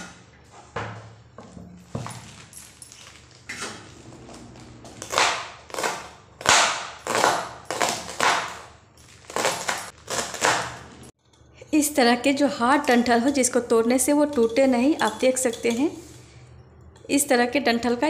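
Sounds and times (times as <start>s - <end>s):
knife chopping on plastic board: 5.0s - 8.7s, 9.3s - 10.9s.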